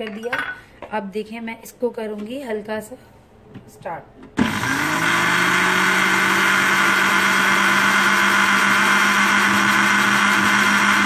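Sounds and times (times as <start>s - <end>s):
electric blender motor running: 4.4s - 11.0s.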